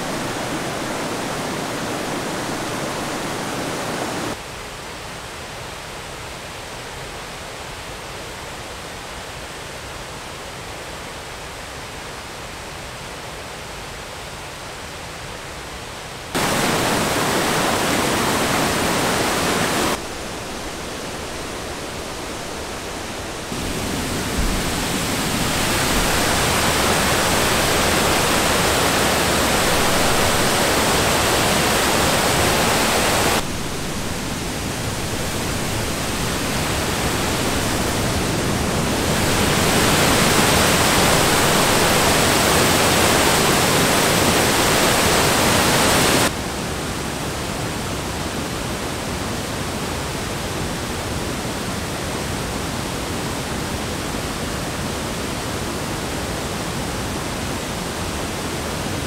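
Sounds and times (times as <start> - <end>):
water rushing over rocks: 0.0 - 4.4, 16.4 - 46.4.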